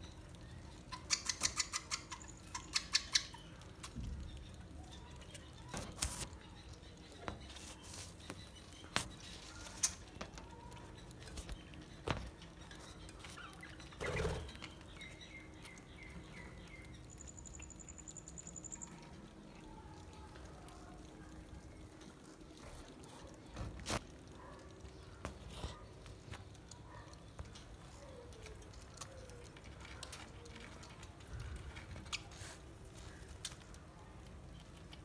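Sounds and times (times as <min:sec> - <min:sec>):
budgerigars chirping and clicking: 0:00.0 - 0:19.2.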